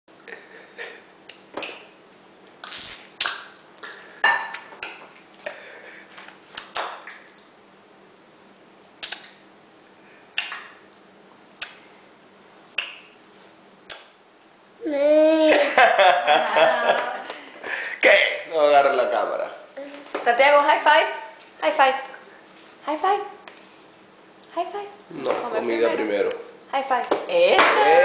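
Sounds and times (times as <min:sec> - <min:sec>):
faint steady hum: 0:00.1 - 0:28.0
sharp clicks and smacks: 0:06.3 - 0:07.5, 0:09.0 - 0:09.4, 0:10.4 - 0:10.8, 0:11.6 - 0:11.8, 0:13.9 - 0:14.2.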